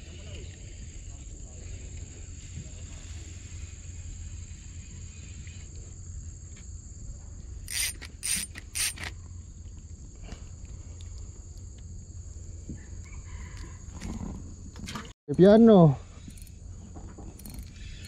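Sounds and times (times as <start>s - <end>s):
steady high buzz: 7.4s - 9.4s
fishing reel winding: 7.7s - 9.1s, 16.2s - 16.6s, 17.4s - 18.0s.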